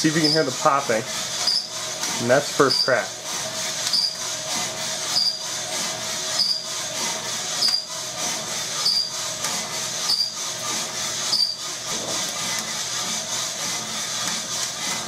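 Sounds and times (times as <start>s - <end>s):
coffee roaster drum turning: 0.0s - 15.0s
high squeak of drive: 0.2s - 0.6s, 1.4s - 1.7s, 2.6s - 3.1s, 3.8s - 4.2s, 5.1s - 5.5s, 6.3s - 6.7s, 7.6s - 7.9s, 8.8s - 9.1s, 10.0s - 10.4s, 11.3s - 11.6s.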